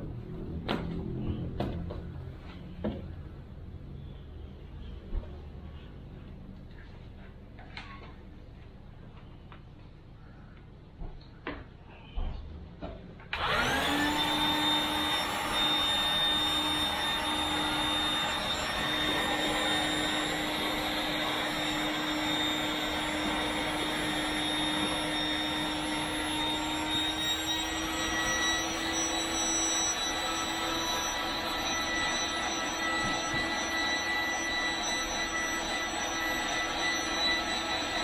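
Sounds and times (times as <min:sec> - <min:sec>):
electric air pump running: 0:13.4 - 0:38.0.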